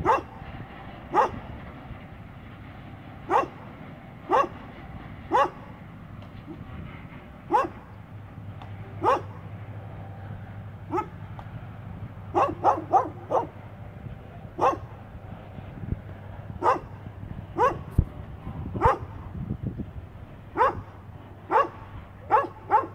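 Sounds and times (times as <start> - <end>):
dog barking: 0.0 - 0.4, 1.1 - 1.4, 3.3 - 3.6, 4.3 - 4.6, 5.3 - 5.7, 7.5 - 7.9, 9.0 - 9.4, 10.9 - 11.2, 12.3 - 13.6, 14.6 - 15.0, 16.6 - 17.0, 17.6 - 17.9, 18.8 - 19.1, 20.6 - 20.9, 21.5 - 22.9.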